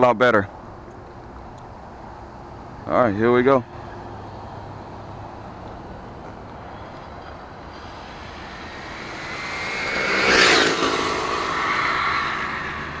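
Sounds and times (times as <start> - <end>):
rc truck drivetrain whine passing: 3.8 - 13.0.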